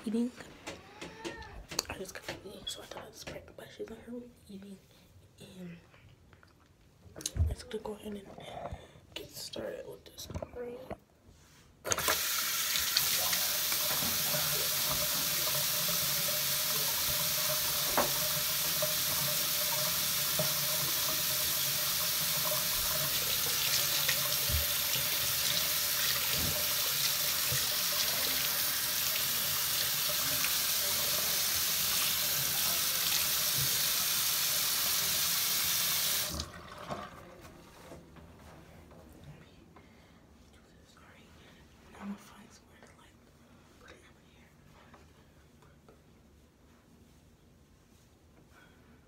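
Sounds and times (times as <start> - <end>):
tap water running into sink: 11.9 - 37.3.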